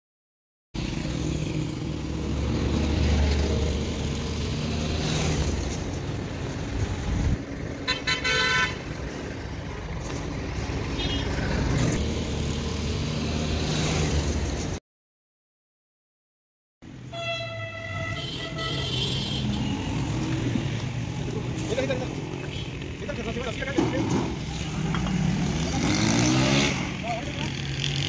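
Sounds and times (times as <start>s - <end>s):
passing vehicle engines: 0.8s - 14.8s, 17.8s - 28.0s
vehicle horn tooting: 7.9s - 8.8s, 17.1s - 19.8s.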